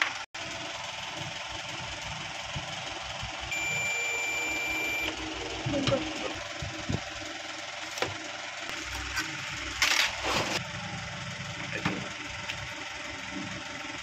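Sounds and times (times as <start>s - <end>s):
steady hum: 1.2s - 11.1s.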